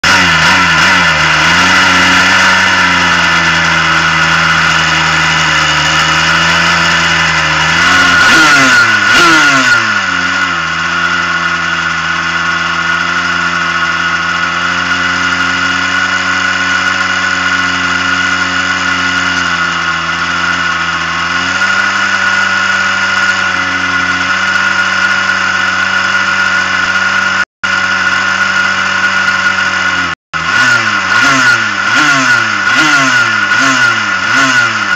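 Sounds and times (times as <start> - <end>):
two-stroke kart engine idling: 0.0 - 34.9.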